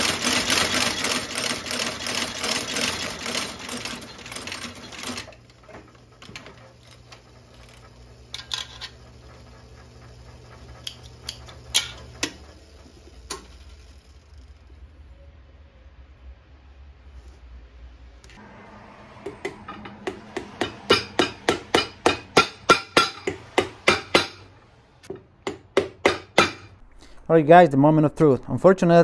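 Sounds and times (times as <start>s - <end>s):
stitching machine clatter: 0.0s - 14.4s
low machine hum: 3.0s - 16.5s, 17.9s - 29.0s.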